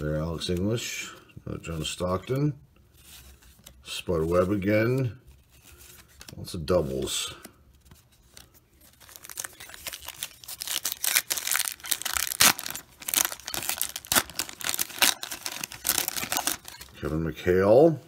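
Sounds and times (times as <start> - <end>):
plastic wrapper tearing and crinkling: 8.3 - 17.0.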